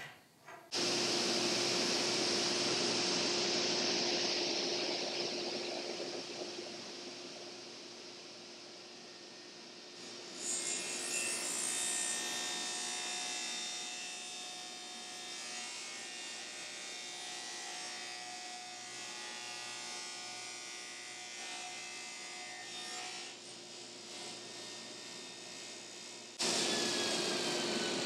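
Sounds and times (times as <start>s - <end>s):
table saw cutting wood: 0.7s - 20.0s, 26.4s - 28.0s.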